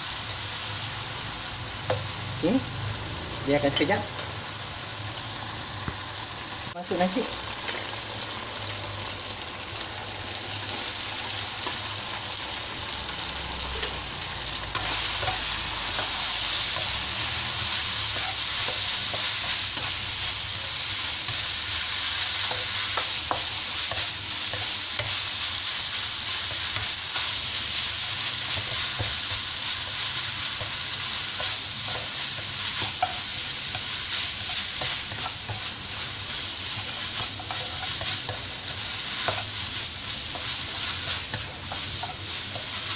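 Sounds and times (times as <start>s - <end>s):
rice sizzling in a wok: 0.0s - 42.9s
spatula scraping and tapping pan: 36.8s - 39.6s.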